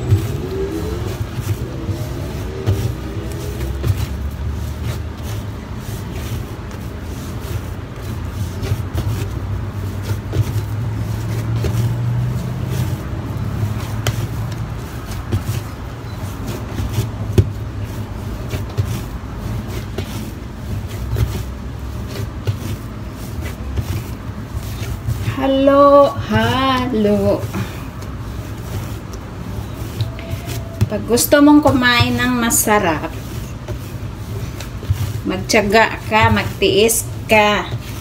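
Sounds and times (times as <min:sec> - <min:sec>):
steady low rumble: 0:00.0 - 0:19.6
dough thumping on table: 0:08.0 - 0:13.1, 0:13.7 - 0:15.8, 0:16.5 - 0:25.3.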